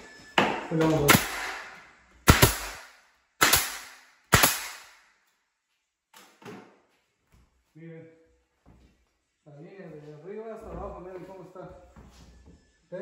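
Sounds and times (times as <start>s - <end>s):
nail gun firing: 1.0s - 5.0s.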